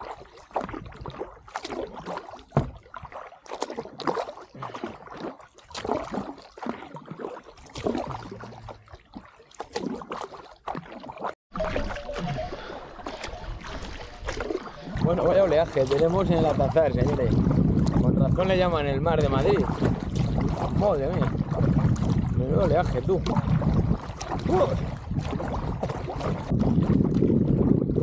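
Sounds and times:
kayak paddle strokes: 0.0 - 27.9
waves splashing against hull: 0.0 - 28.0
wind rumbling on microphone: 11.6 - 28.0.

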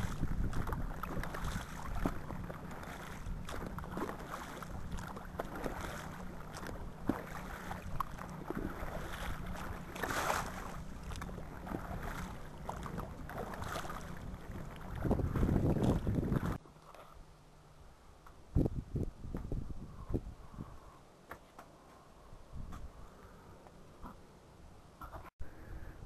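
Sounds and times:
boat engine drone: 0.0 - 16.6
water splashing against hull: 0.0 - 17.2.

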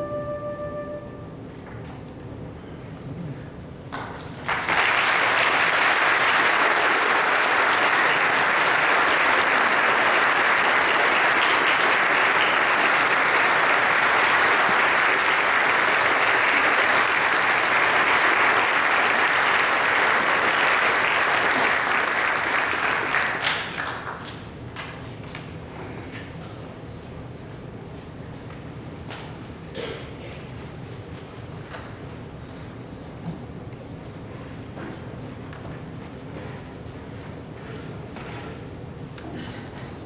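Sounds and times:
audience applauding: 3.9 - 24.3.

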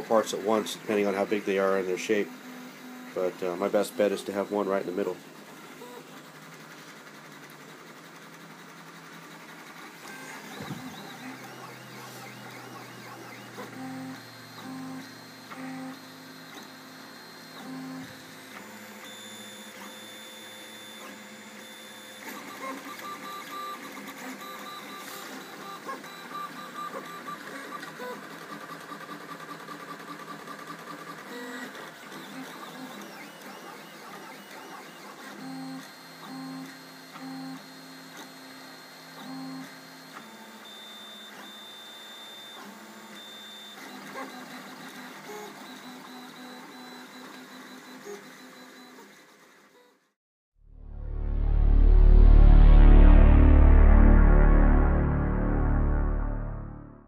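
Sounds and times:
short low buzzes: 50.6 - 57.0.

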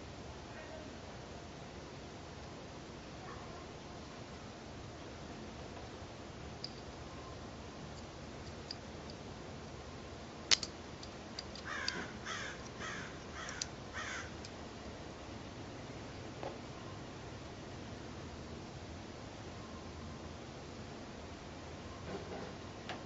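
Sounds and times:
faint ticks of small parts: 6.6 - 7.1, 7.9 - 9.3, 10.5 - 15.0
sharp metallic click: 10.5 - 12.0
bird harsh calls: 11.7 - 14.3.

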